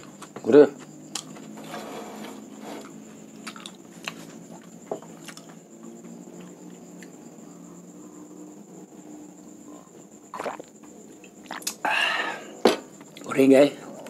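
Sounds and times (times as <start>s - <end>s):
faint steady hum: 0.0s - 14.0s
person chewing crunchy food: 3.3s - 5.5s, 10.3s - 11.8s.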